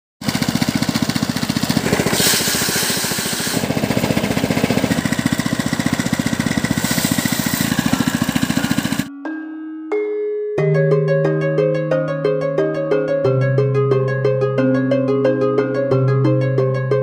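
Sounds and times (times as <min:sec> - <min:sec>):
small engine chugging: 0:00.2 - 0:09.1.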